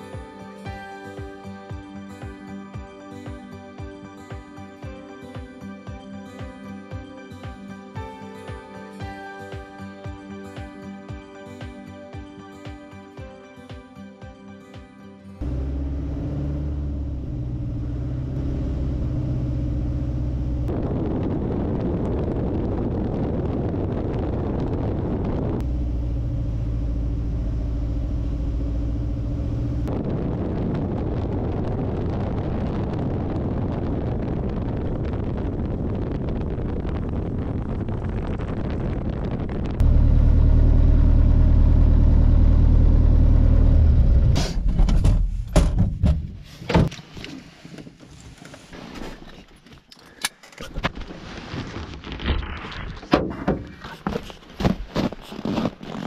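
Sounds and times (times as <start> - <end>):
plane engine and propeller hum: 15.4 - 24.0, 24.6 - 31.8, 39.4 - 44.4.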